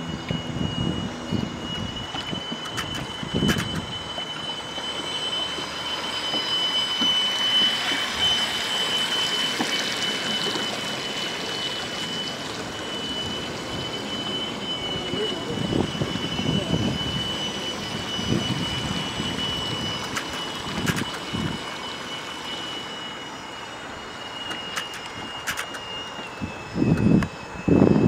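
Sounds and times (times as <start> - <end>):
wind rumbling on microphone: 0.0 - 4.2, 14.7 - 21.7, 26.4 - 28.0
electric motor whining: 0.0 - 28.0
clicks: 2.2 - 3.9, 24.5 - 25.8.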